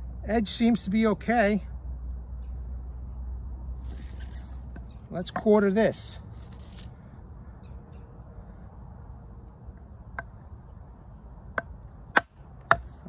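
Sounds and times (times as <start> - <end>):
insect chirr: 0.0 - 13.0
low outdoor rumble: 0.0 - 13.0.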